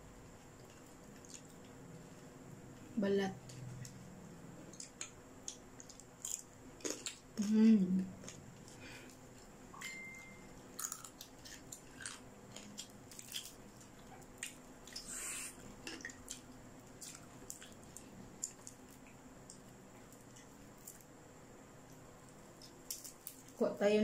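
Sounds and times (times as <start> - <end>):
chewing smacks and mouth clicks: 0.6 - 1.8, 10.8 - 21.0
crackly rip of meat: 10.8 - 15.1, 22.8 - 23.6.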